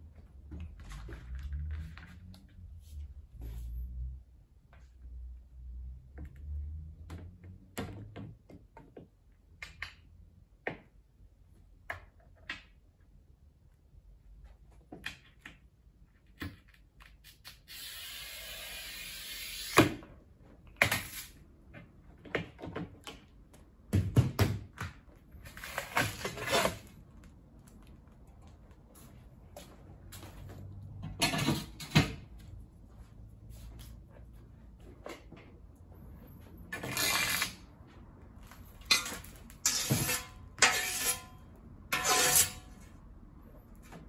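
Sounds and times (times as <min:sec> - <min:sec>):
glass cutter scoring glass: 0:38.8 - 0:41.3, 0:41.9 - 0:42.6.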